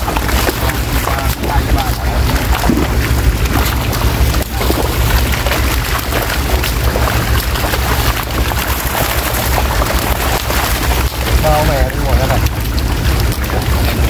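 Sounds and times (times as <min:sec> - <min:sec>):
fish thrashing and splashing: 0:00.0 - 0:14.0
steady low rumble: 0:00.0 - 0:14.0.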